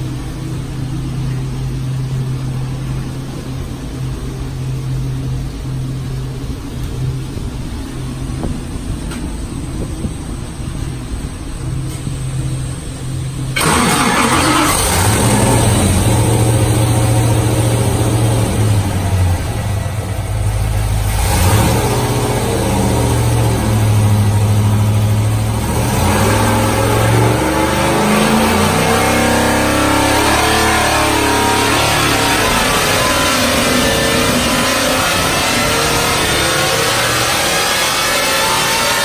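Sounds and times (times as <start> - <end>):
supercharged engine running hard: 0.0 - 39.0.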